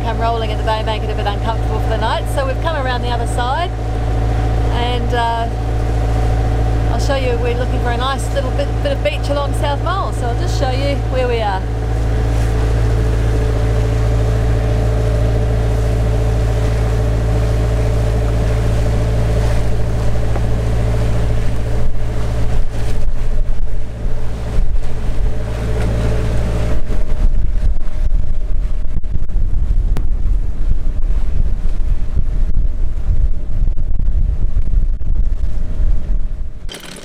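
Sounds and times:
boat engine running: 0.0s - 27.7s, 36.5s - 37.0s
wind buffeting microphone: 0.0s - 36.7s.

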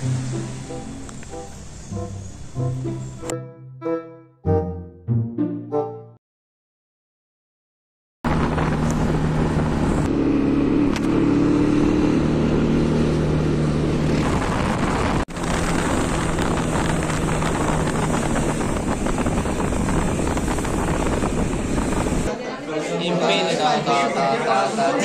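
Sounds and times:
wind on microphone: 8.3s - 10.1s, 13.9s - 22.3s
motorcycle engine running: 15.3s - 22.2s.

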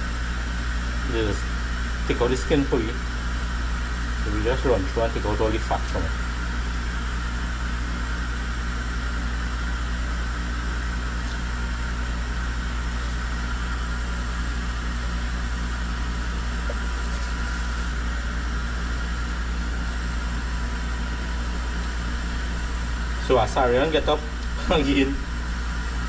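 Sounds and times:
machine humming: 0.0s - 26.0s.

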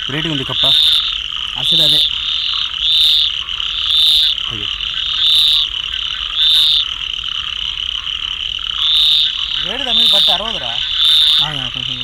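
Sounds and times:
frog chorus: 0.0s - 12.0s
frog high-pitched call: 0.0s - 12.0s.

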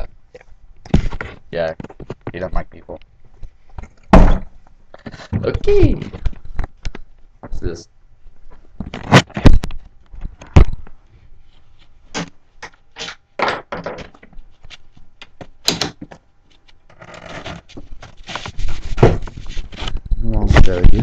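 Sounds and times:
knocks and bumps on laptop: 4.1s - 4.6s, 18.9s - 19.4s.

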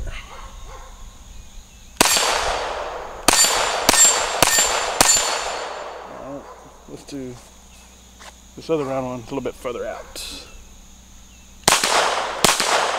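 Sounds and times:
pistol shots: 2.0s - 6.1s, 11.6s - 12.9s
steel target ringing: 3.3s - 6.0s.

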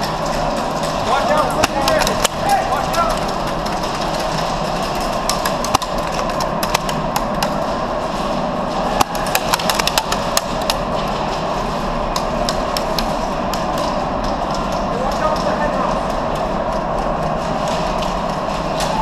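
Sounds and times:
pellets striking wood: 0.0s - 7.6s, 8.8s - 11.4s
steady background noise: 0.0s - 19.0s.

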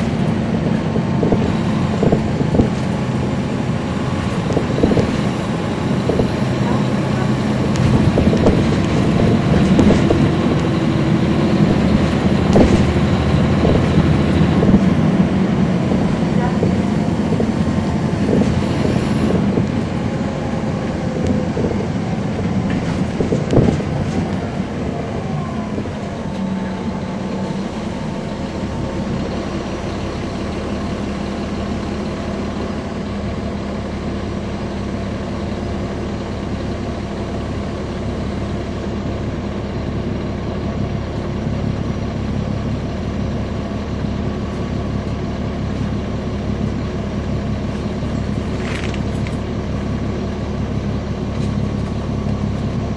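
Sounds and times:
bus diesel engine drone: 0.0s - 52.9s.

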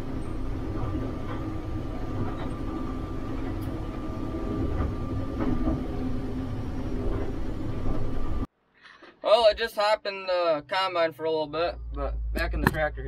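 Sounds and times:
combine machine drone with whine: 0.0s - 8.5s, 11.4s - 13.0s.

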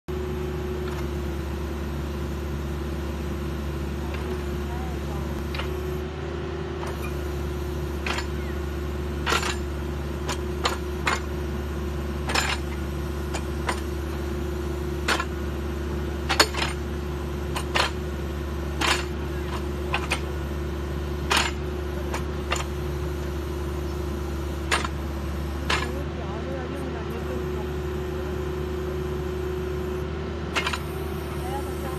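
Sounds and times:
excavator engine and hydraulics humming: 0.1s - 31.9s
sharp metallic clicks and clanks: 5.3s - 5.9s, 8.0s - 8.5s, 9.2s - 11.4s, 12.2s - 14.0s, 15.0s - 15.4s, 16.2s - 16.9s, 17.5s - 18.0s, 18.7s - 20.4s, 21.2s - 22.8s, 24.6s - 26.0s, 30.6s - 31.0s.

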